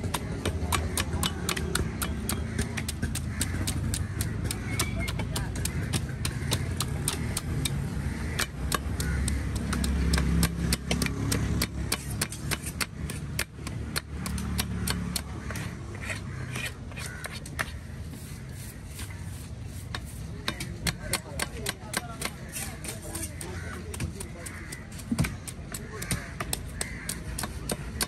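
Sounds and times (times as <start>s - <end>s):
knife scraping fish scales: 15.5s - 20.5s.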